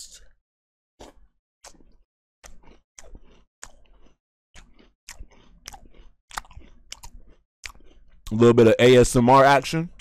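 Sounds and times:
cereal crunching chews: 0:01.0 - 0:08.6.

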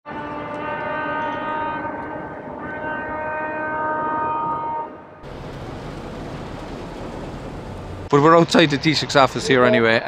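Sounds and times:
boat horn blasts: 0:00.0 - 0:05.2
outdoor rush: 0:05.2 - 0:10.0.

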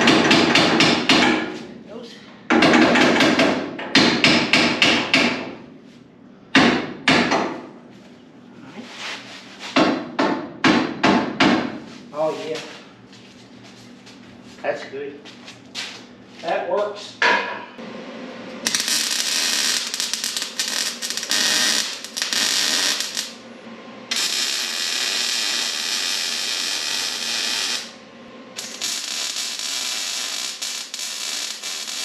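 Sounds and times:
welder arc crackling: 0:18.5 - 0:23.4, 0:24.1 - 0:28.0, 0:28.6 - 0:32.0.

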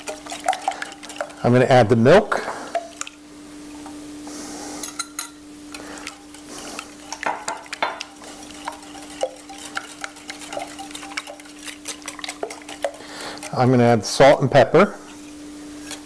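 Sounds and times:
whisk clicking against bowl: 0:00.0 - 0:01.6, 0:02.7 - 0:03.2, 0:05.7 - 0:13.6
steady low hum: 0:00.0 - 0:16.0.

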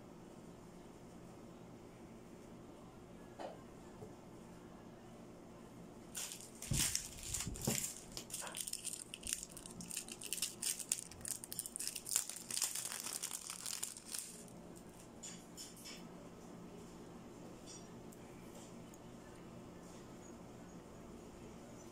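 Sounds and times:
plastic bag crinkling: 0:06.2 - 0:15.0.

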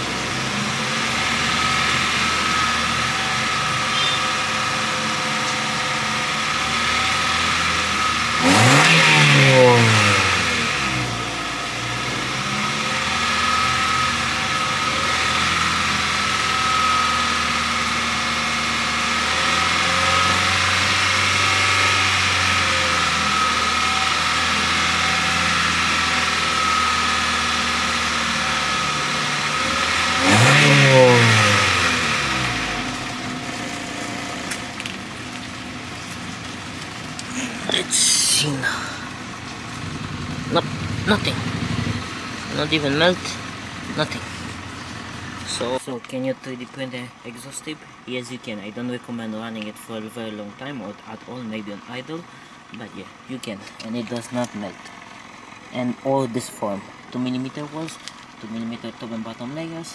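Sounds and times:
car engine revving: 0:00.0 - 0:45.8.

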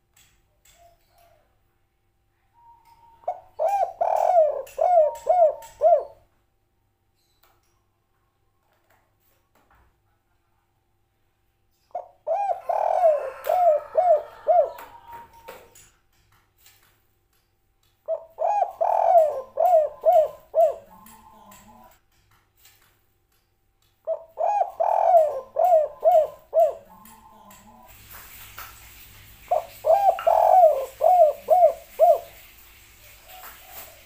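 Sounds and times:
dove cooing: 0:02.6 - 0:06.2, 0:12.0 - 0:15.8, 0:18.1 - 0:22.0, 0:24.1 - 0:27.9, 0:29.4 - 0:34.0.

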